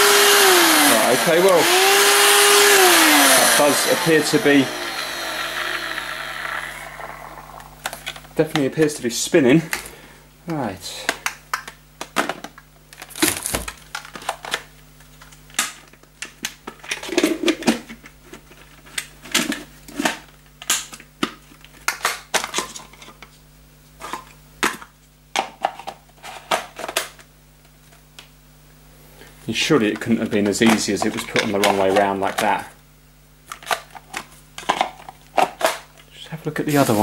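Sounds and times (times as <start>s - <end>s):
faint steady hum: 0.0s - 37.0s
plastic packaging rustling: 36.6s - 37.0s.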